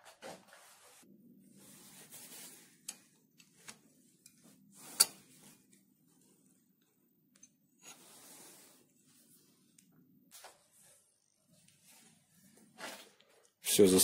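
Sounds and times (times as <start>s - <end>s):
metal tools clinking and scraping: 4.2s - 5.3s.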